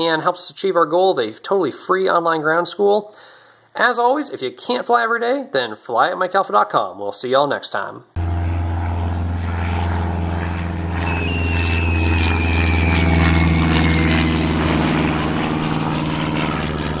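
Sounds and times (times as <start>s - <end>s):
high tone sliding downward: 8.2s - 17.0s
propeller airplane engine droning: 8.2s - 17.0s.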